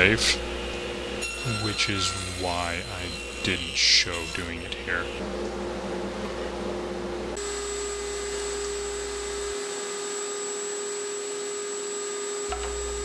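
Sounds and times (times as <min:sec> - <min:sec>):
table saw running: 0:00.0 - 0:05.2, 0:07.4 - 0:13.0
router whining: 0:07.4 - 0:13.0.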